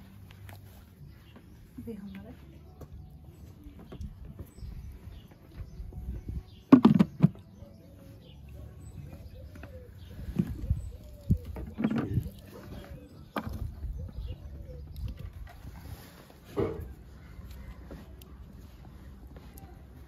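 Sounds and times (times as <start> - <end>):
pigeon cooing: 7.6 - 17.4.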